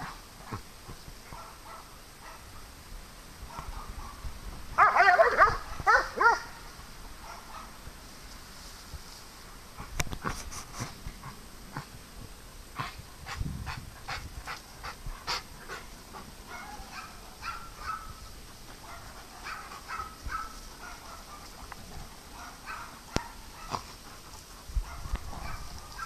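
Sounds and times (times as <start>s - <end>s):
dogs barking: 1.3s - 2.5s, 4.8s - 6.6s, 7.2s - 7.8s, 14.8s - 18.2s, 18.8s - 24.2s, 24.8s - 26.0s
dogs yelping: 4.8s - 6.5s, 16.5s - 18.2s, 18.8s - 21.6s, 22.3s - 23.9s.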